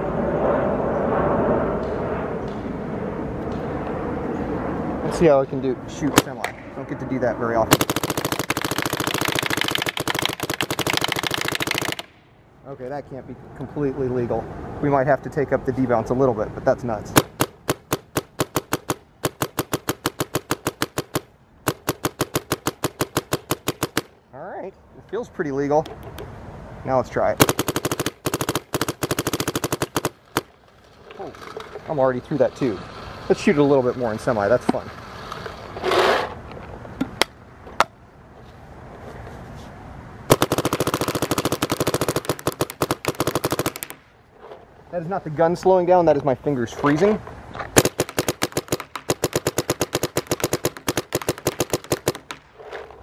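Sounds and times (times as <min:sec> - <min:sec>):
paintball marker firing: 0:06.1 - 0:06.7, 0:07.7 - 0:12.2, 0:17.2 - 0:24.1, 0:27.4 - 0:30.5, 0:40.3 - 0:44.0, 0:47.7 - 0:52.5.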